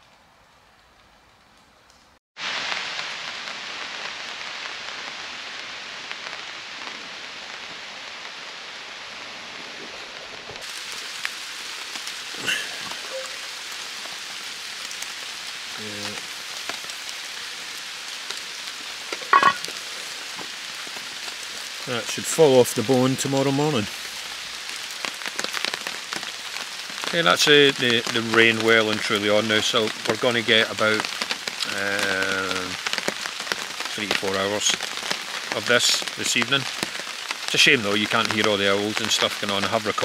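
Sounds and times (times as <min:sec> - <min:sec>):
steady rain falling: 0:00.0 - 0:40.0
metal lid clinks: 0:19.3 - 0:19.6.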